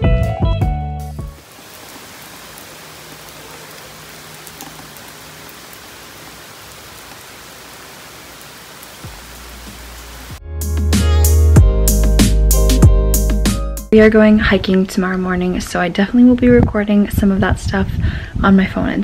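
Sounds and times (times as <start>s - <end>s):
steady rain on trees: 1.4s - 10.4s.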